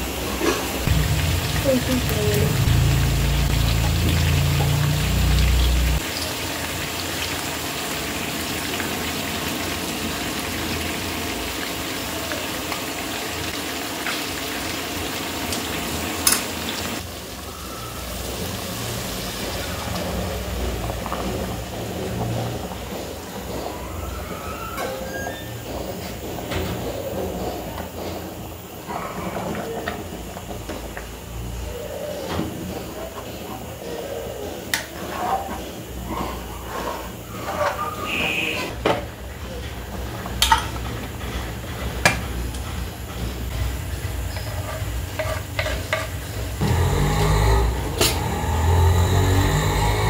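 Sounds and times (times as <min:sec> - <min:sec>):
chicken sizzling in pan: 0:00.1 - 0:24.8
low hum: 0:00.9 - 0:06.0
curry bubbling: 0:17.0 - 0:27.8.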